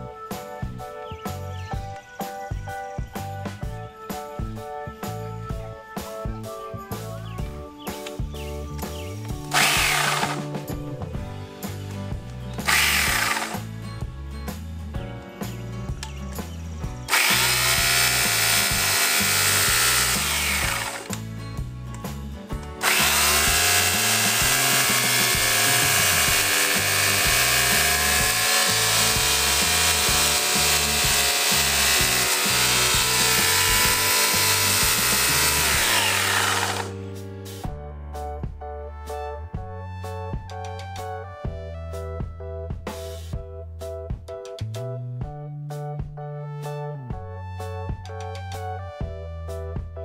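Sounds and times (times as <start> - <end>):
background music: 0.0 - 50.0
electric chainsaw cutting branch: 9.4 - 10.5, 12.6 - 13.8, 17.1 - 21.3, 22.8 - 37.0.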